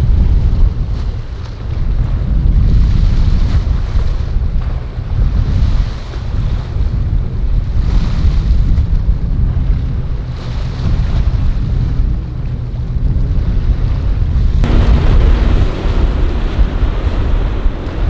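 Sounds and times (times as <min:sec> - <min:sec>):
wind buffeting the microphone: 0:00.0 - 0:18.0
surf surging: 0:09.1 - 0:18.0.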